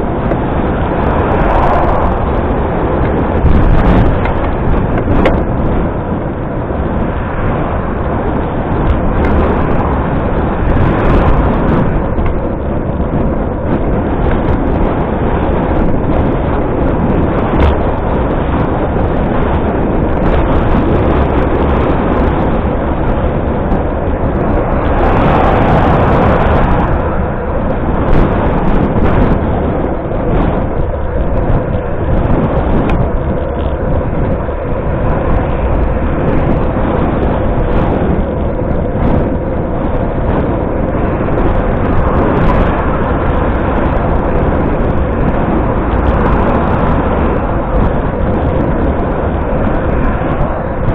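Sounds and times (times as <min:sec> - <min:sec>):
road and traffic noise: 0:00.0 - 0:50.9
wind buffeting microphone: 0:00.0 - 0:50.9.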